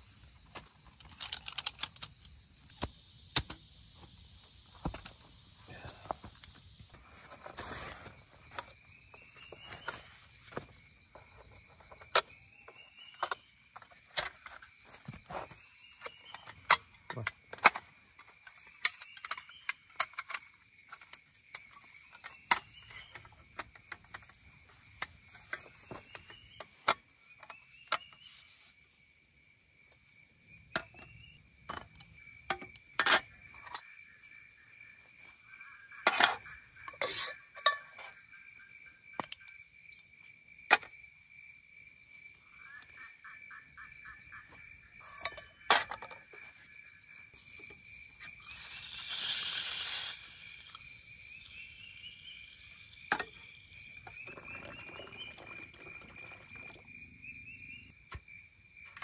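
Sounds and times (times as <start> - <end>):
metal camp gear clicking and clinking: 0.7 - 2.8
high insect drone: 28.4 - 59.0.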